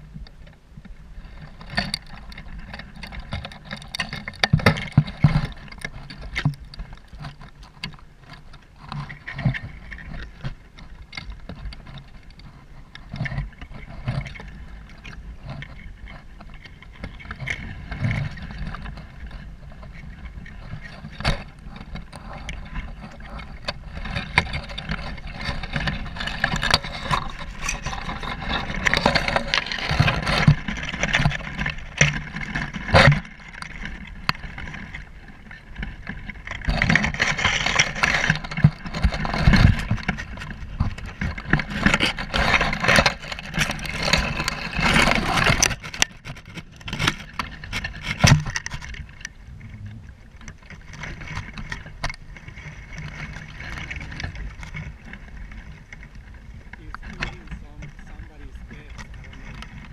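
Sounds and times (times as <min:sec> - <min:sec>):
low rumble: 0:49.0 - 0:51.6.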